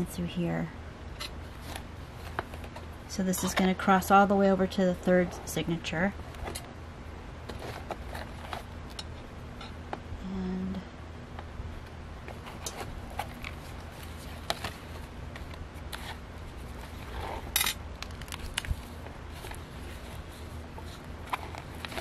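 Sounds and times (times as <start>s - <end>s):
low steady hum: 0.0s - 22.0s
paper pages rustling: 12.2s - 22.0s.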